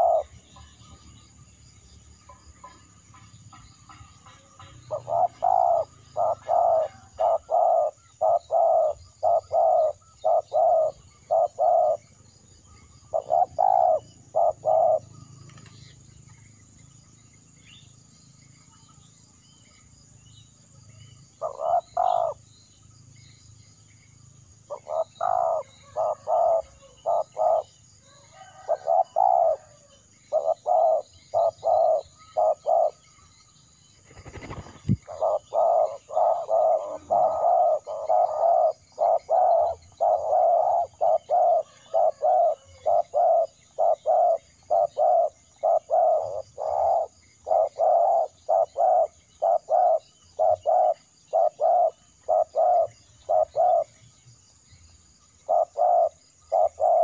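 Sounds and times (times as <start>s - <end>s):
dove cooing: 0.0s - 0.7s, 4.9s - 12.1s, 13.1s - 15.7s, 21.4s - 22.4s, 24.7s - 33.0s, 34.2s - 54.0s, 55.4s - 57.0s.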